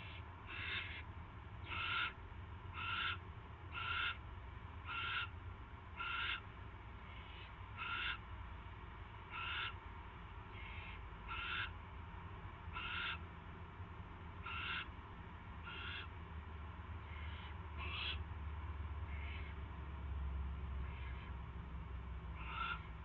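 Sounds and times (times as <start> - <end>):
owlets hissing begging calls: 0.0 - 1.0, 1.6 - 2.2, 2.8 - 4.2, 4.9 - 5.4, 6.0 - 6.4, 7.0 - 8.2, 9.3 - 9.8, 10.6 - 11.8, 12.8 - 13.2, 14.4 - 14.9, 15.6 - 16.1, 17.0 - 18.2, 22.4 - 22.9
steady low hum: 0.0 - 23.0.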